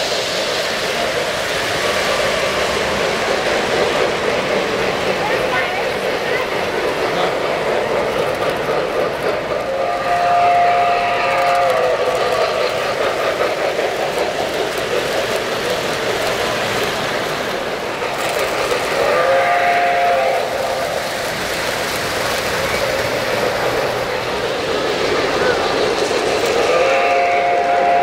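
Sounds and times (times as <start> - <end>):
model trains running: 0.0 - 28.0
model train horn blasts: 9.7 - 12.0, 19.2 - 20.6, 26.7 - 28.0.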